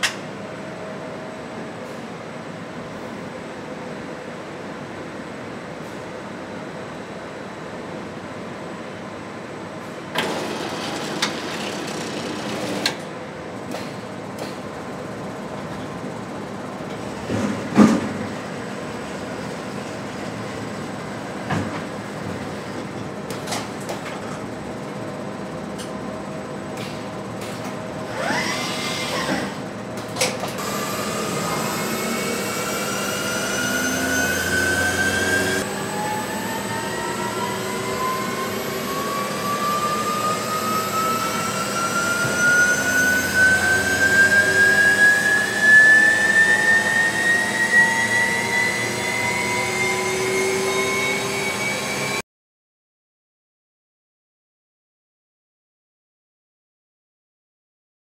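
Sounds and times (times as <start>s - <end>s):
electric motor whine rising: 28.1s - 29.6s, 30.6s - 52.2s.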